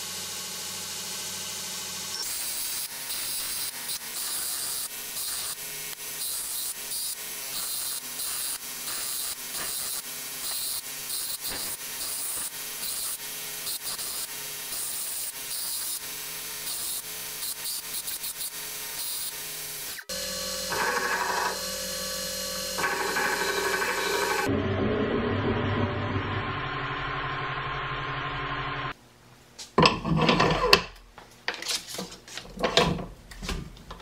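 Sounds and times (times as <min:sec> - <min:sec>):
machine hum: 0:00.0 - 0:29.0
belt grinder grinding steel: 0:02.1 - 0:24.5.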